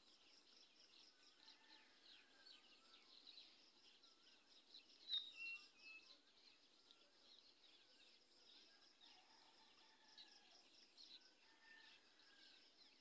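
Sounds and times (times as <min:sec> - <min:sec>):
bird chirps: 0:02.7 - 0:08.0.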